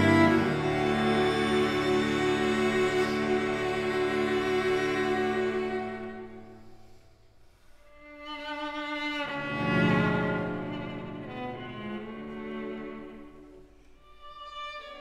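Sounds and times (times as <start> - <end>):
string ensemble playing: 0.0 - 7.0, 8.0 - 15.0.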